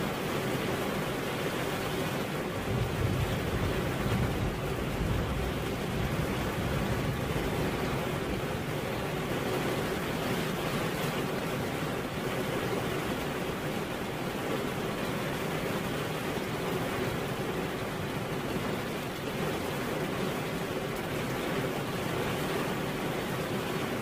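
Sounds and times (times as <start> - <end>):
steady rain hiss: 0.0 - 24.0.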